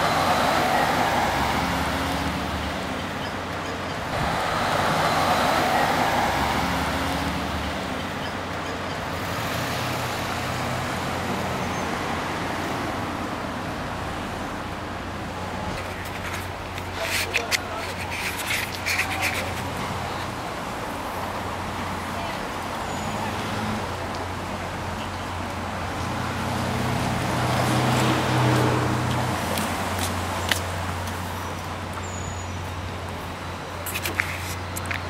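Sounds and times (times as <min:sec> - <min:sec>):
cars passing: 0:00.0 - 0:35.0
traffic hum: 0:00.0 - 0:35.0.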